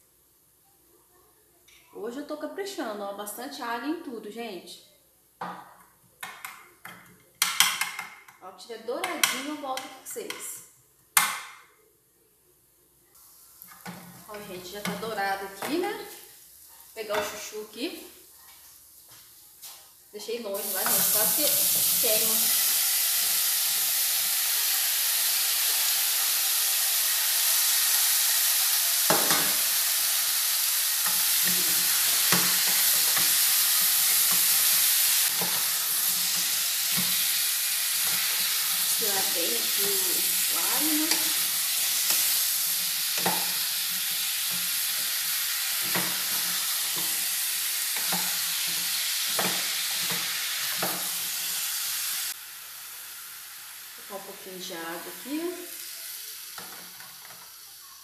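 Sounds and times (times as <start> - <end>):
vegetables sizzling in hot fat: 13.0 - 58.0.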